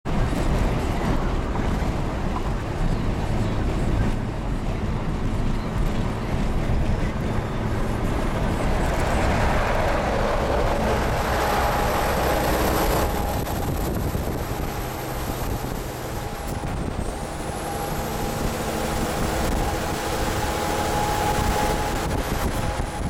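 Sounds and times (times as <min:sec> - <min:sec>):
road and wind noise: 0:00.0 - 0:23.0
truck rushing noise: 0:00.1 - 0:23.0.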